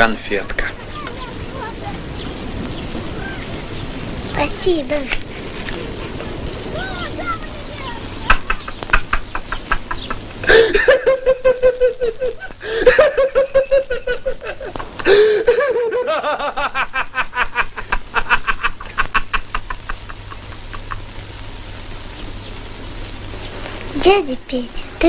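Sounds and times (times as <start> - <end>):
people laughing loudly: 8.2 - 21.1.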